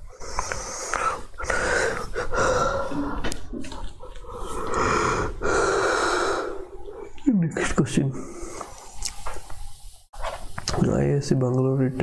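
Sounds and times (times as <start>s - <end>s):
person breathing into microphone: 0.0s - 7.2s, 8.1s - 9.9s.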